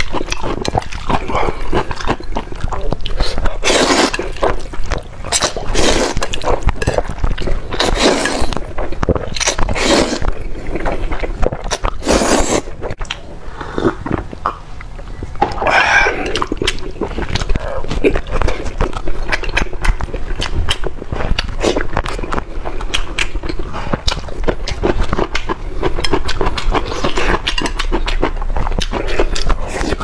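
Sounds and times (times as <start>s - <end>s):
chewing and mouth smacks: 0.0s - 30.0s
wet noodle slurping: 0.3s - 12.8s.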